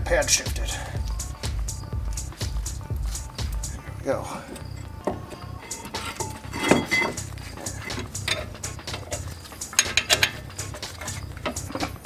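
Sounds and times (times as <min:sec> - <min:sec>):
wrench clinking on metal: 0:04.6 - 0:12.0.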